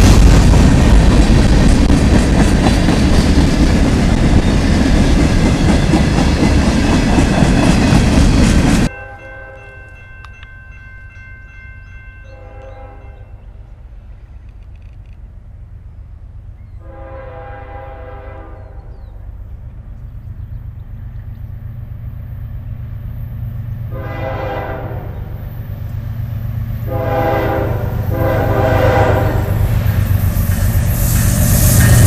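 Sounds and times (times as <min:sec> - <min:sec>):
freight train rolling past: 0:00.0 - 0:32.0
distant train horn: 0:08.8 - 0:10.4, 0:12.2 - 0:13.8, 0:16.7 - 0:19.2, 0:23.8 - 0:25.4, 0:26.7 - 0:32.0.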